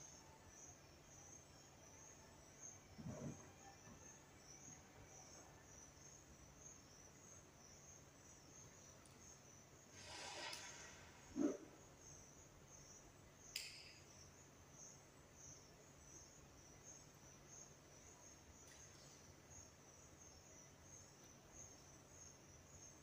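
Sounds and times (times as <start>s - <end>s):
insect chirring: 0.0s - 23.0s
sharp click: 13.5s - 14.0s.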